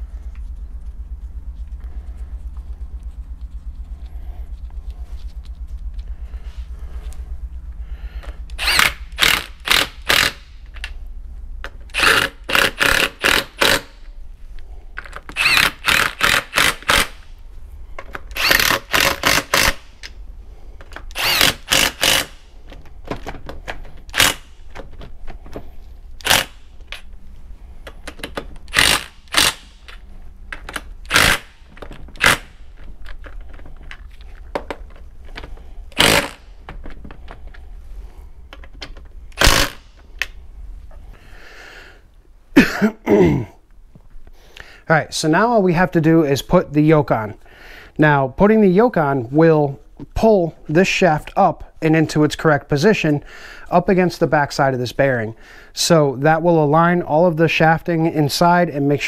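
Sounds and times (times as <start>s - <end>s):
power driver running bolts: 8.2s - 10.9s, 11.9s - 13.9s, 15.1s - 17.2s, 18.1s - 19.8s, 20.9s - 22.4s, 26.2s - 26.6s, 27.9s - 30.0s, 30.6s - 33.4s, 34.6s - 37.4s, 39.4s - 39.8s.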